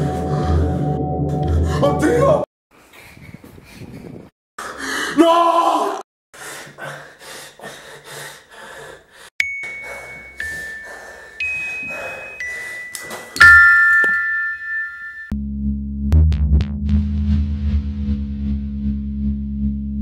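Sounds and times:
man screaming: 5.1 - 6.0
high bell-like notes: 9.4 - 15.3.

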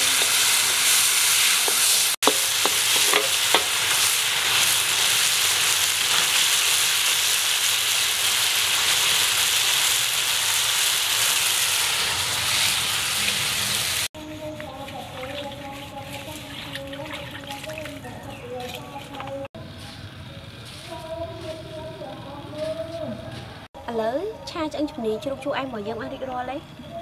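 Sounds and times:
food sizzling in a wok: 0.0 - 14.1
wooden spatula knocking pan: 1.7 - 3.8.

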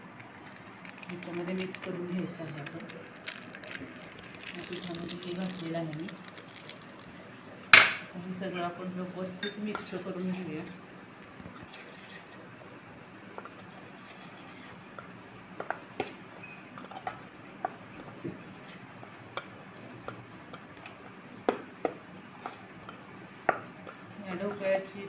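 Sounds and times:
spoon clinking against bowl: 9.4 - 10.0
spoon scraping steel bowl: 11.5 - 12.8, 13.4 - 14.8, 23.8 - 24.9.

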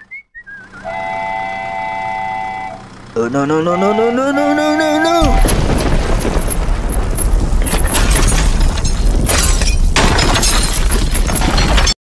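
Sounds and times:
deep rumble: 4.5 - 11.8
crumbling and shattering crash: 5.2 - 12.0.

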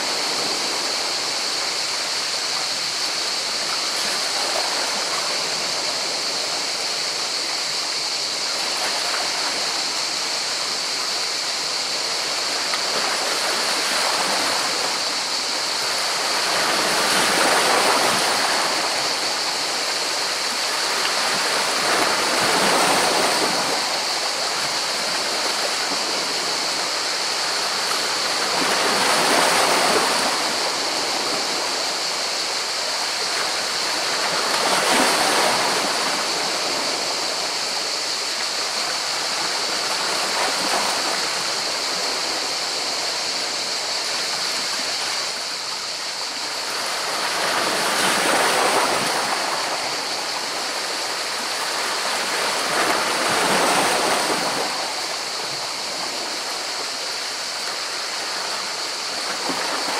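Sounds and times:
sea waves breaking on rocks: 15.8 - 19.3, 19.9 - 31.7, 46.2 - 59.9.

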